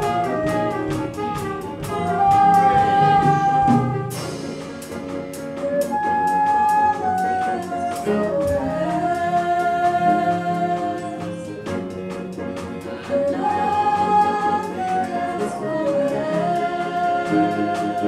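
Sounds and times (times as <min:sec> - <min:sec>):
drum kit ticks: 0:00.0 - 0:09.0
flute melody: 0:00.0 - 0:18.0
guitars: 0:00.0 - 0:18.0
piano chords: 0:00.0 - 0:18.0.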